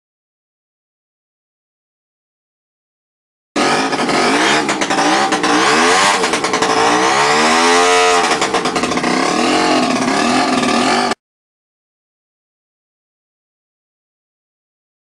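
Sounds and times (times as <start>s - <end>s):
two-stroke engine revving: 3.6s - 11.2s.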